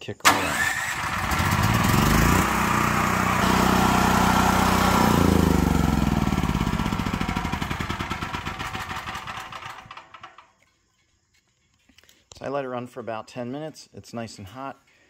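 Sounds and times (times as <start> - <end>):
generator engine running: 0.3 - 10.4.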